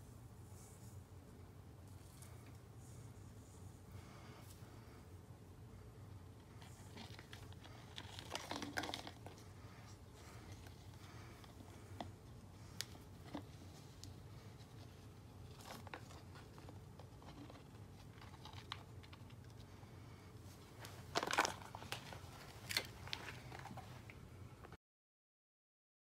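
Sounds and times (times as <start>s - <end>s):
low steady hum: 0.0s - 24.8s
plastic cup crinkling: 6.4s - 19.6s, 20.7s - 24.2s.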